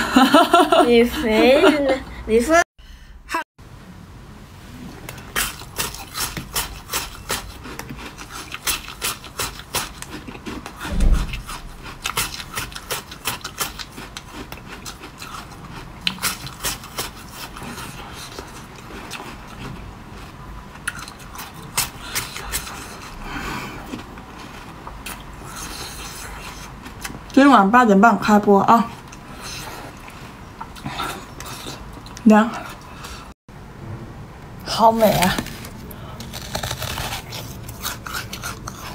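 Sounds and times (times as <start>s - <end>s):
ice being bitten and chewed: 5.0s - 27.3s, 35.3s - 38.9s
dull heavy thump: 10.9s - 11.8s.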